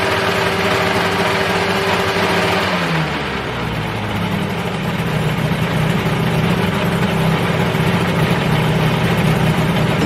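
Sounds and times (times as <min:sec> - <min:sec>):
helicopter engine idling: 0:03.4 - 0:10.0.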